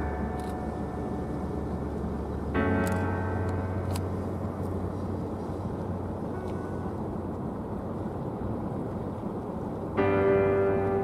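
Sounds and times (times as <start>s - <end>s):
ship low rumble: 0.0s - 11.0s.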